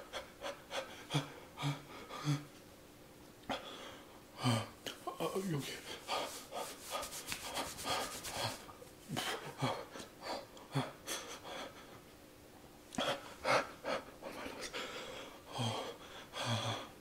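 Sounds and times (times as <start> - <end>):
man breathing hard: 0.0 - 2.6, 3.5 - 4.8, 5.6 - 12.0, 13.0 - 17.0.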